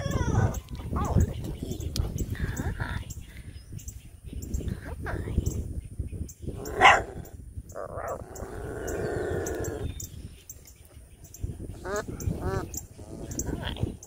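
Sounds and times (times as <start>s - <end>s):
animal calls and yelps: 0.0s - 1.9s, 6.5s - 10.1s, 11.6s - 14.0s.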